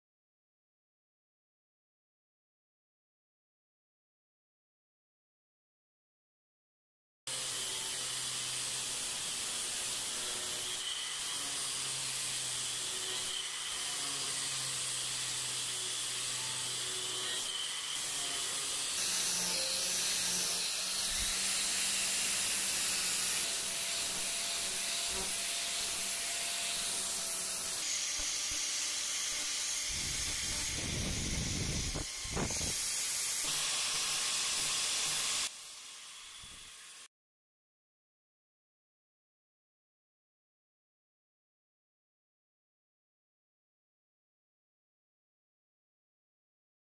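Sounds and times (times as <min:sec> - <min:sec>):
angle grinder grinding steel: 0:07.3 - 0:37.1.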